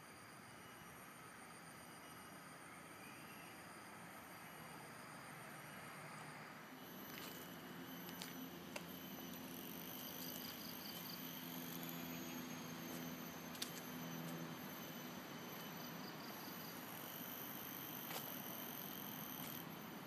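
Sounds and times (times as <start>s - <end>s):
low hum: 6.7s - 20.0s.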